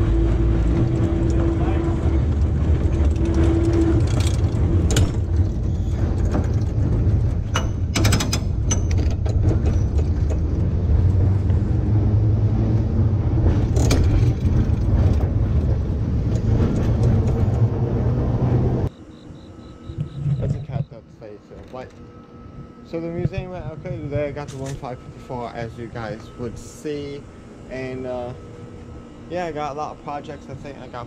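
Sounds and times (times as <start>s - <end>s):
streetcar rumbling on rails: 0.0s - 19.0s.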